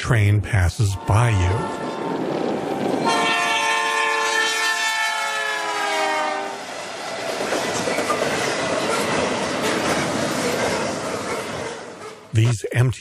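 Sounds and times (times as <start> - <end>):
locomotive horn: 0.9 - 2.2, 3.0 - 6.6
train cars clickety-clack: 5.8 - 12.3.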